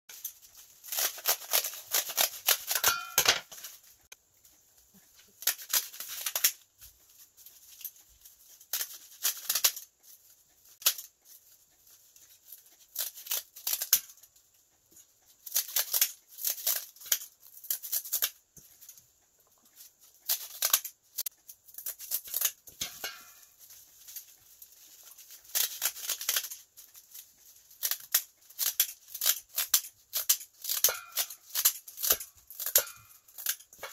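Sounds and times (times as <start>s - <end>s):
scissors snipping dried seaweed: 27.8s - 33.7s.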